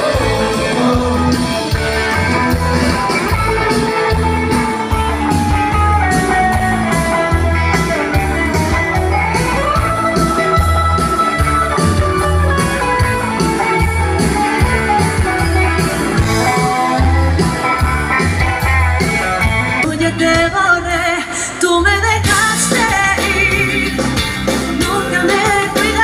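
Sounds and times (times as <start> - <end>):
person singing: 0.0 - 1.8, 19.8 - 26.0
electric guitars: 0.0 - 26.0.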